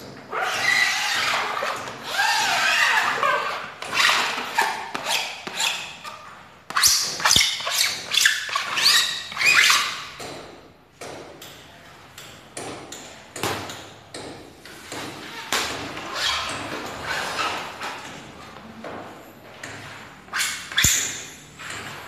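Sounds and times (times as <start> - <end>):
glue spreader scraping floor planks: 0.1 - 10.2, 14.8 - 18.2.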